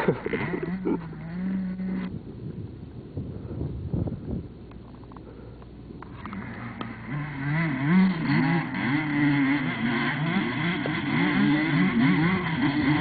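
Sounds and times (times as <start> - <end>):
motorcycle engine revving hard: 0.0 - 2.1, 6.1 - 13.0.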